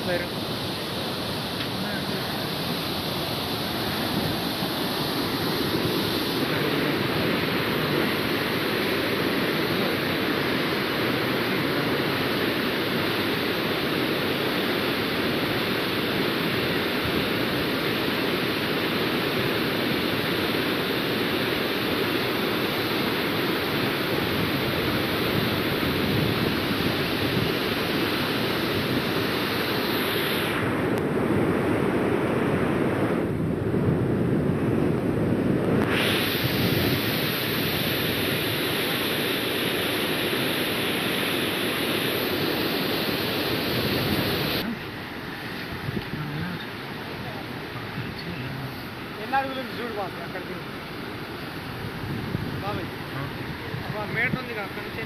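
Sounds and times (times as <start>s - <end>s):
rushing floodwater: 0.0s - 34.0s, 34.9s - 55.0s.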